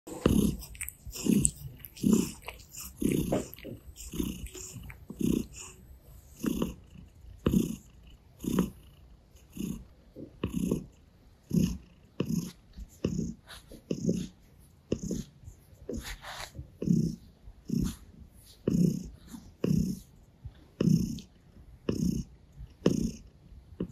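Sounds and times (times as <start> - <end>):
cat licking fur: 0.1 - 6.8, 11.6 - 20.0
cat purring: 0.1 - 23.9.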